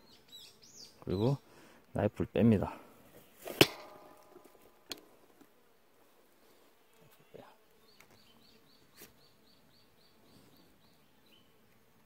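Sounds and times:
bird chirping: 0:00.0 - 0:01.4, 0:07.8 - 0:11.6.

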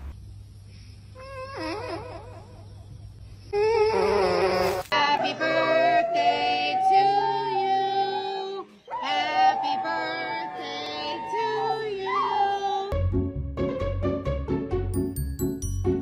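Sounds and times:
dog howling: 0:05.2 - 0:12.9.

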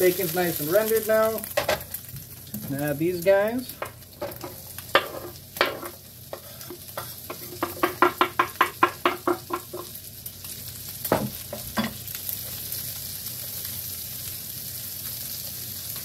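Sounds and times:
frying sizzle: 0:00.0 - 0:16.0.

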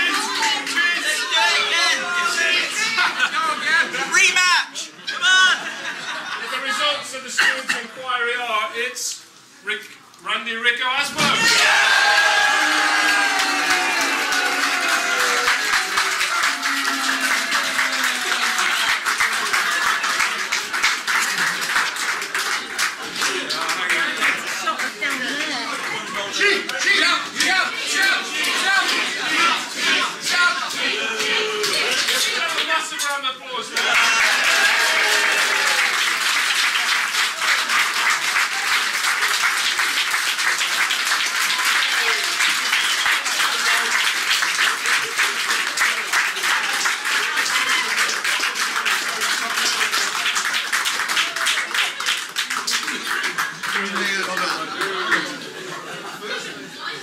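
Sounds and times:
crowd clapping: 0:00.0 - 0:02.6, 0:11.2 - 0:32.8, 0:33.7 - 0:55.8
voices cheering: 0:11.2 - 0:20.5, 0:33.7 - 0:38.9.

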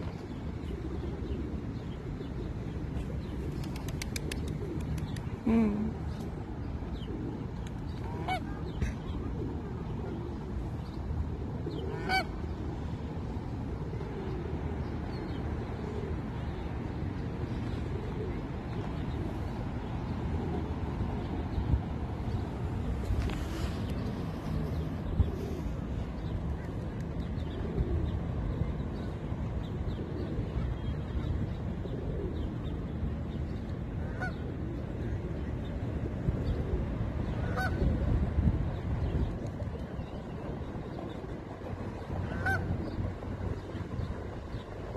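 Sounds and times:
geese honking: 0:37.4 - 0:37.7, 0:42.3 - 0:42.7.

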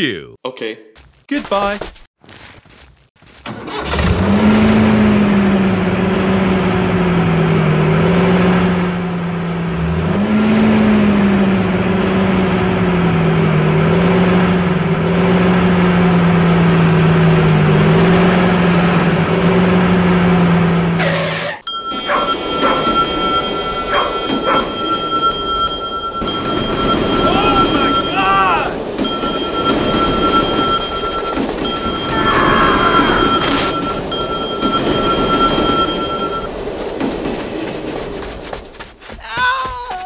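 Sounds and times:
tractor engine running: 0:03.2 - 0:10.0, 0:21.6 - 0:39.2.

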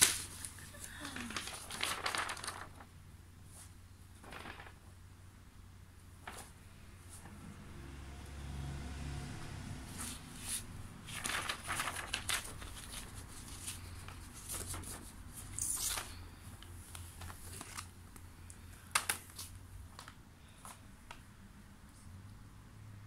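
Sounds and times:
paper rustling and crinkling: 0:00.0 - 0:04.9, 0:06.2 - 0:07.4, 0:10.0 - 0:21.2.

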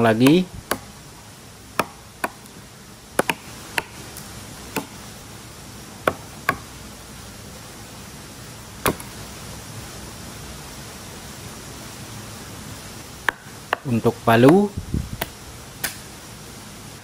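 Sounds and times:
blade chopping wood: 0:00.2 - 0:00.9, 0:01.8 - 0:02.5, 0:03.2 - 0:05.0, 0:06.1 - 0:06.6, 0:08.8 - 0:09.2.

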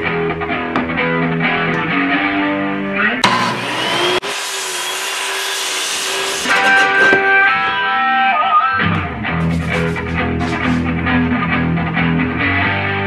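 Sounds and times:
guitar music: 0:00.0 - 0:03.2, 0:06.5 - 0:13.0
circular saw cutting wood: 0:03.2 - 0:07.7, 0:09.4 - 0:10.9.

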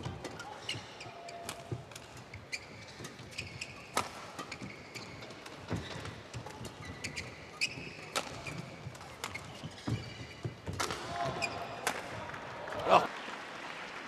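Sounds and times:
shoes squeaking on court: 0:00.0 - 0:11.9
rackets striking shuttlecock: 0:01.5 - 0:12.2.

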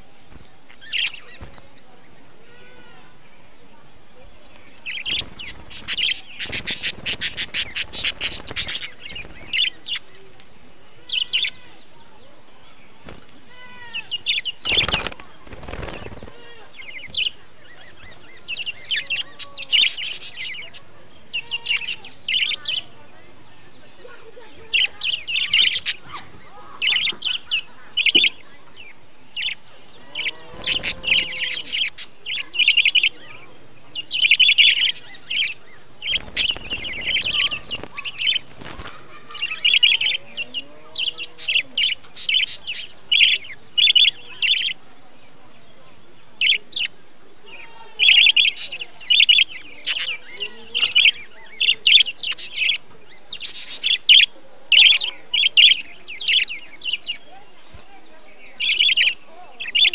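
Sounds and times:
budgerigars chattering: 0:00.0 - 0:59.9
wings fluttering: 0:00.1 - 0:02.2, 0:04.4 - 0:10.7, 0:12.9 - 0:19.0, 0:29.4 - 0:40.6.

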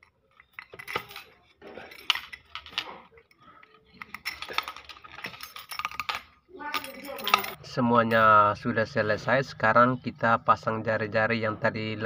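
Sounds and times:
metal spokes clinking: 0:00.0 - 0:08.4.

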